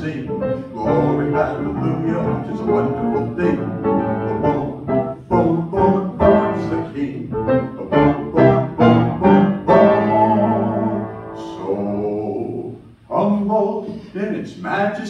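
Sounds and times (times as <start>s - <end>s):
piano playing rhythmic chords: 0.0s - 12.2s.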